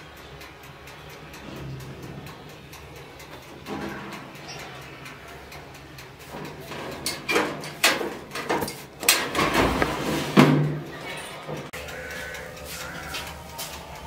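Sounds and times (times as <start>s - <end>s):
metal baking tray clattering: 6.3s - 11.7s.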